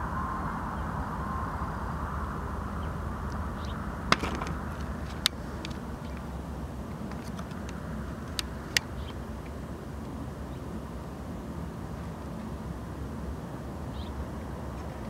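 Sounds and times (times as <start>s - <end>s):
diesel locomotives rumbling: 0.0s - 15.0s
tripod knocks: 4.1s - 5.4s.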